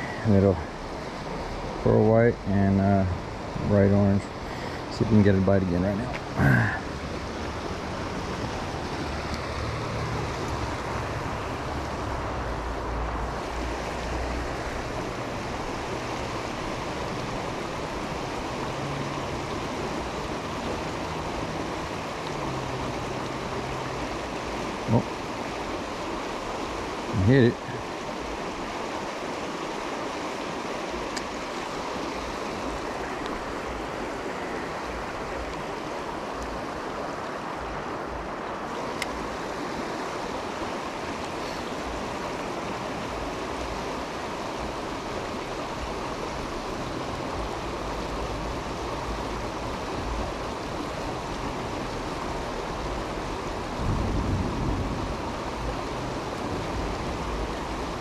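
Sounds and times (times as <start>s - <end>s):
river water rushing over rocks: 0.0s - 58.0s.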